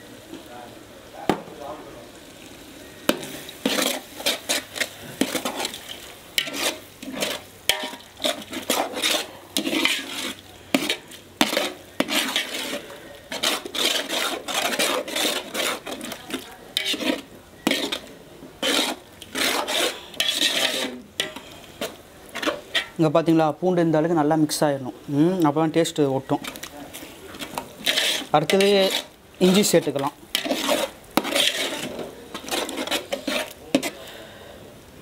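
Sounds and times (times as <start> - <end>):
faint sizzle: 0.0 - 35.0
metal ladle scraping metal pot: 3.1 - 23.0, 26.2 - 34.1.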